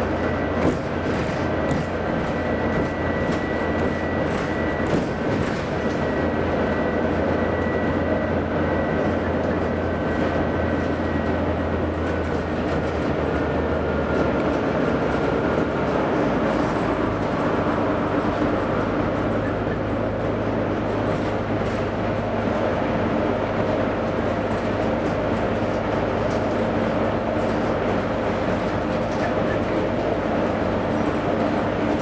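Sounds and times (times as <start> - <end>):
tyre and road noise: 0.0 - 7.6
bus diesel engine droning: 0.0 - 32.0.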